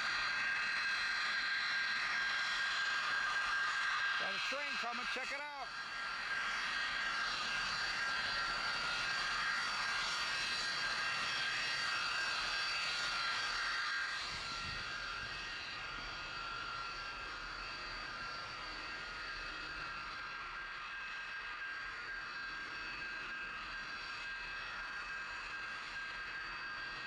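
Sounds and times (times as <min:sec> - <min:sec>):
jet engine whining: 0:00.0 - 0:27.0.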